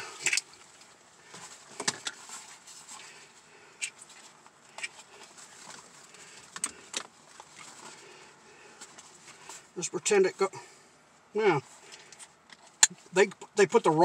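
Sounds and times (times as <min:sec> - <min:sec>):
fabric rustling: 0:00.0 - 0:09.8.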